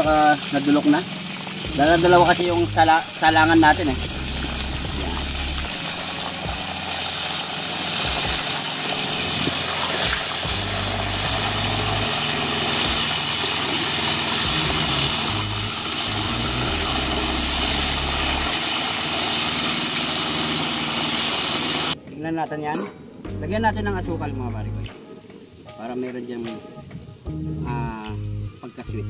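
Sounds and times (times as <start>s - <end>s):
hot oil sizzling: 0.0s - 22.0s
low rumble: 1.7s - 7.0s.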